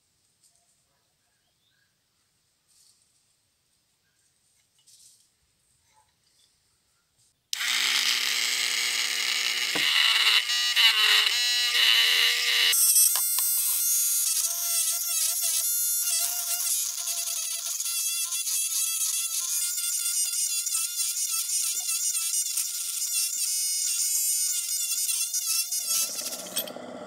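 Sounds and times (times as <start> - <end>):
rotary tool grinding metal: 7.6 - 27.0.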